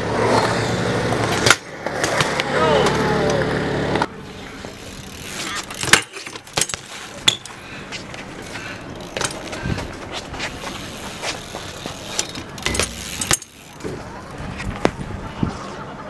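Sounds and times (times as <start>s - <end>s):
bike tyres rolling on concrete: 0.0s - 16.0s
bike landing knocks: 5.2s - 7.5s, 9.0s - 10.0s, 10.6s - 15.0s.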